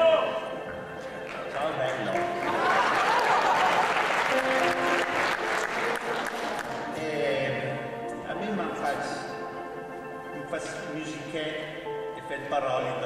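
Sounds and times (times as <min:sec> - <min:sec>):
electronic keyboard held notes: 0:00.0 - 0:13.0
audience applauding: 0:01.1 - 0:07.0.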